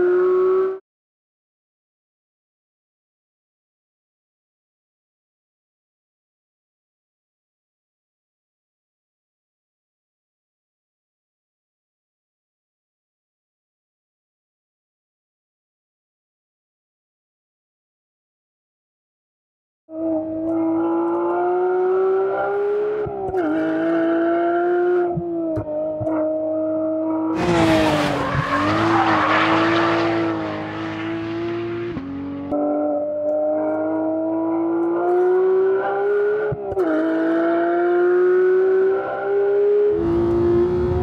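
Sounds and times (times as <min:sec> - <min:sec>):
sports car engine revving: 0:20.0 - 0:41.0.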